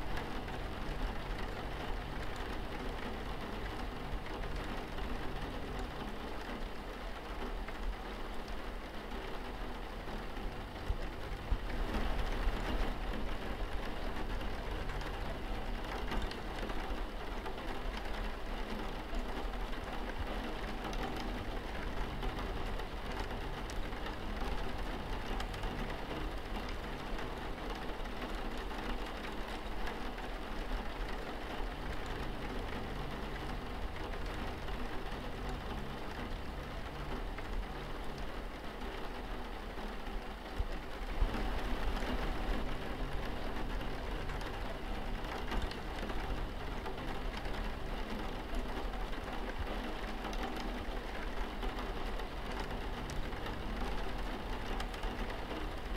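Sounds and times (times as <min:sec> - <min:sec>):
rain on a window pane: 0:00.0 - 0:55.9.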